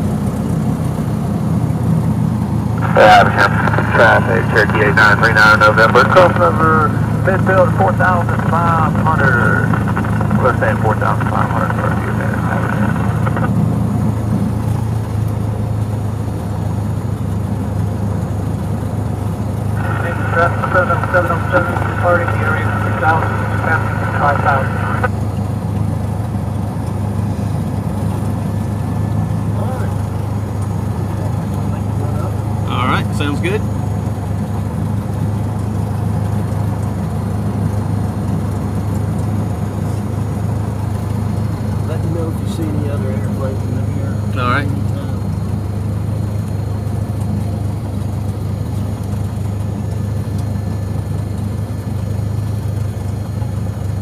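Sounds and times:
light airplane engine and propeller: 0.0 - 54.0.

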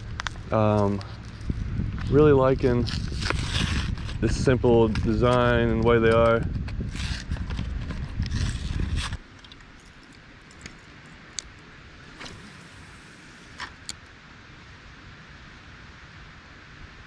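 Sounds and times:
faint outdoor hiss: 0.0 - 3.3, 9.1 - 17.0.

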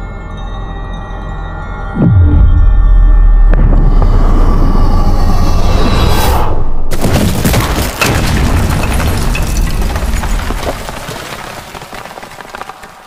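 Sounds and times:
deep rumbling boom: 2.0 - 6.3.

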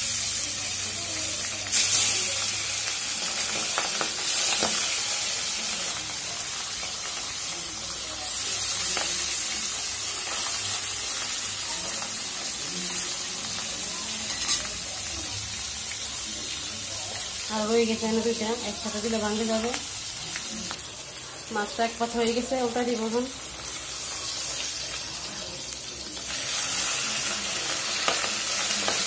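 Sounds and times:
fish frying in hot oil: 0.0 - 29.0.

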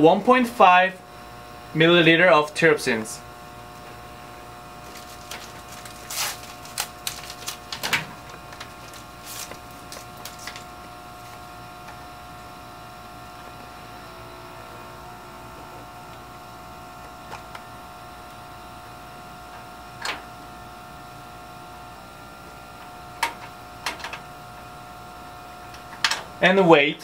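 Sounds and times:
cabinet blower hum: 0.0 - 27.0.

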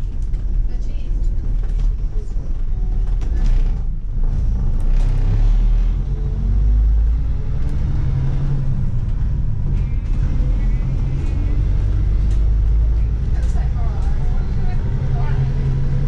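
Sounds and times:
body rattles: 0.0 - 3.9
bus engine rumbling: 0.0 - 16.0.

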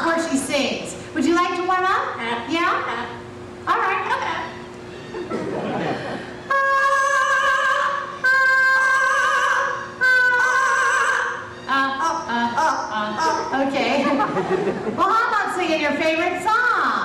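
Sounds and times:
parrot singing: 6.4 - 13.8.

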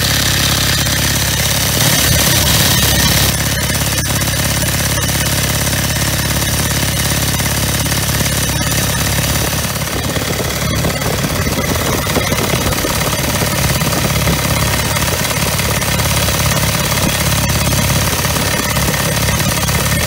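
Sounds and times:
motorcycle engine cruising: 0.0 - 20.0.

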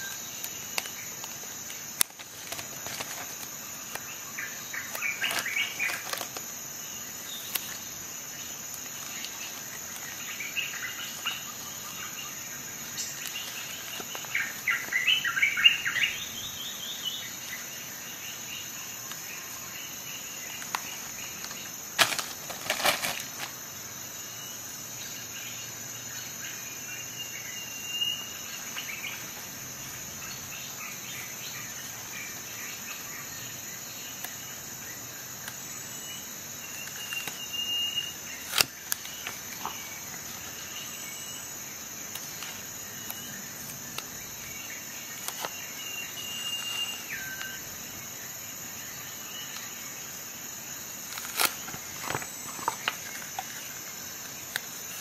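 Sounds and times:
plastic wrapping crinkling: 0.4 - 4.1, 4.8 - 6.5, 13.2 - 15.0, 20.6 - 23.6, 51.1 - 53.6.

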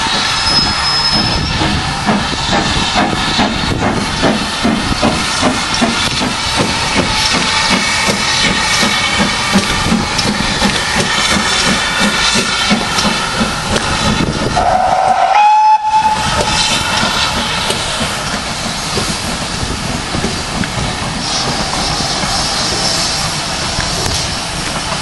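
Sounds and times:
steam locomotive exhaust beating: 0.0 - 25.0
steam whistle blast: 14.5 - 16.8.

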